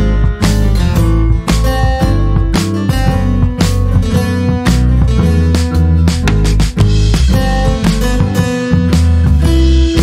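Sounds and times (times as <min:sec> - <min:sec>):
steady beat: 0:00.0 - 0:10.0
strummed acoustic guitar music: 0:00.0 - 0:10.0.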